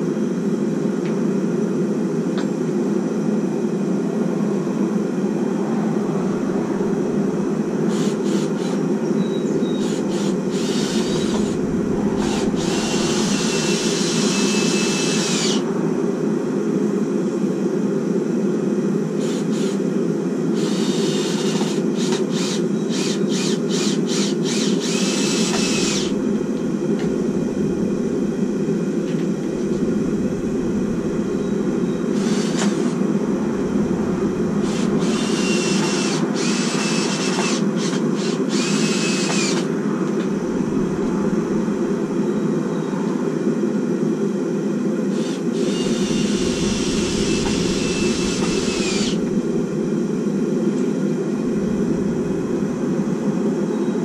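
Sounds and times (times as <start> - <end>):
forge roaring: 3.2 - 9.1, 9.8 - 17.2, 25.0 - 36.5, 39.8 - 42.6, 45.6 - 54.0
high whirring power tool: 5.6 - 15.9, 19.2 - 19.9, 20.5 - 39.7, 45.1 - 52.5.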